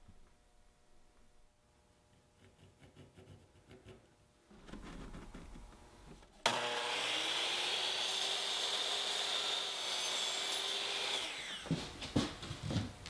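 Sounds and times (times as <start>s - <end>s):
miter saw cutting wood: 6.4s - 11.8s.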